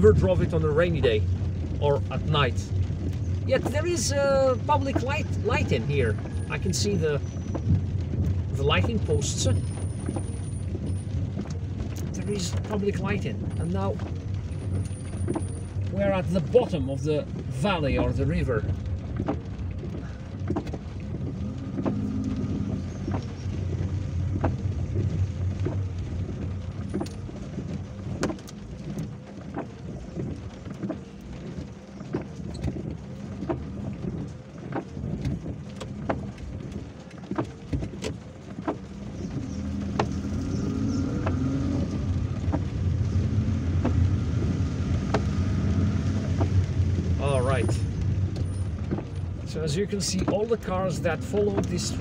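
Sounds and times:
car engine hum: 0.0s - 52.0s
rain ticking on car: 0.0s - 52.0s
windscreen wipers sweeping: 0.0s - 52.0s.

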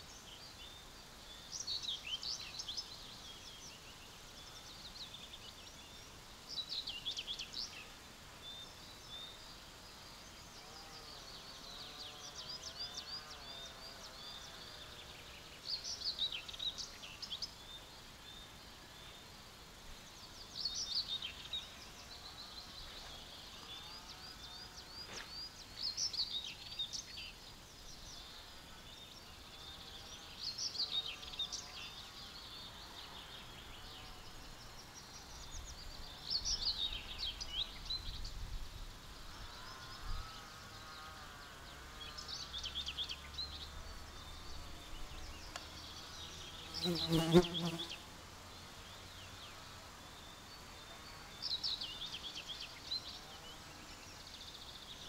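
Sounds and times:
birds chirping and twittering: 0.0s - 55.0s
bird song phrase: 20.1s - 48.0s, 48.8s - 55.0s.

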